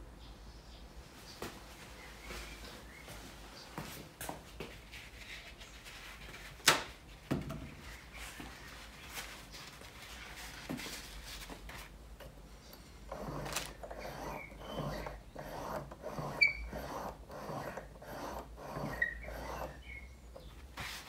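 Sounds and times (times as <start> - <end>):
high squeaks: 13.1 - 20.2.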